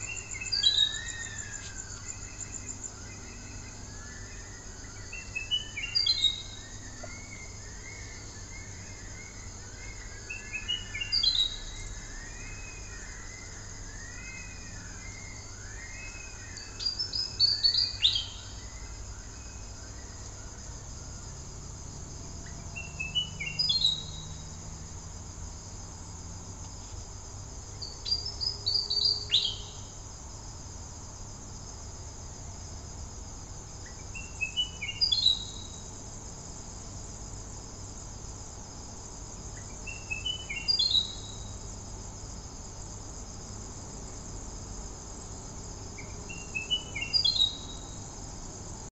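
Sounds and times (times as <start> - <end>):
bird singing whistled notes: 0.0 - 20.2, 22.7 - 24.5, 27.8 - 29.9, 33.9 - 35.8, 39.6 - 41.5, 46.0 - 48.0
high insect trill: 0.0 - 48.9.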